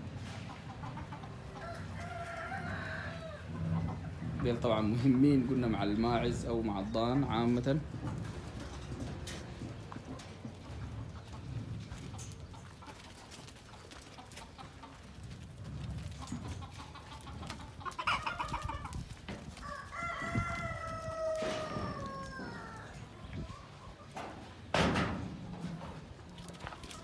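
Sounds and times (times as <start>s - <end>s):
rooster crowing: 1.6s - 3.5s, 19.6s - 23.0s.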